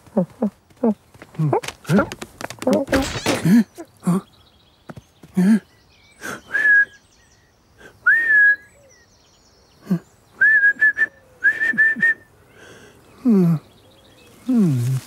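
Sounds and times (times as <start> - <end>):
man whistling: 6.5 - 7.0, 8.0 - 8.7, 10.4 - 12.3
low vocal murmurs: 14.4 - 15.0.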